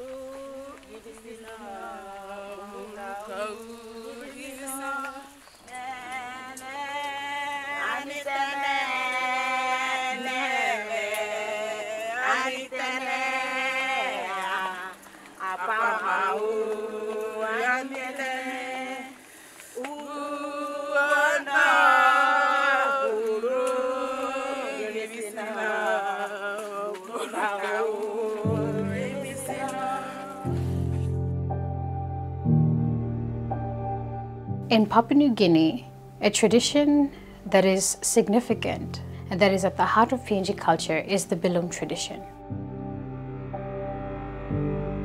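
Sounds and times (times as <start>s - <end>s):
person chanting: 0.0s - 19.2s, 19.8s - 31.2s.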